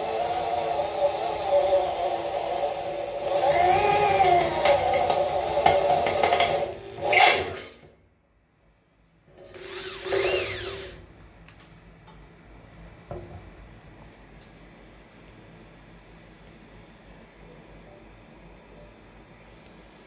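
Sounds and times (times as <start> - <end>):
electric drill cutting sheet metal: 0.0 - 7.8, 9.4 - 11.0
click: 19.6 - 19.8.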